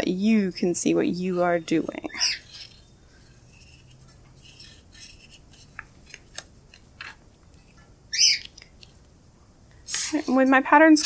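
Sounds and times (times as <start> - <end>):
paper rustling: 2.4 - 7.8.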